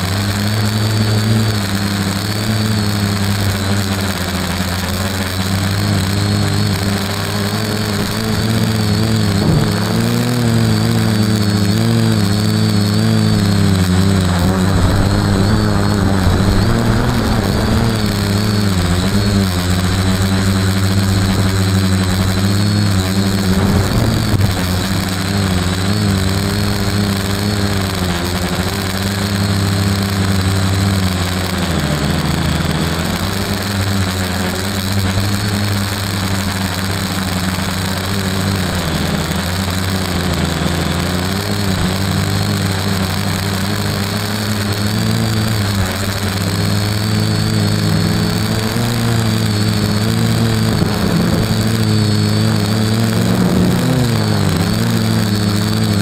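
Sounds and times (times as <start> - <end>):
drone motors humming: 0.0 - 56.0
rush of air: 5.6 - 27.8.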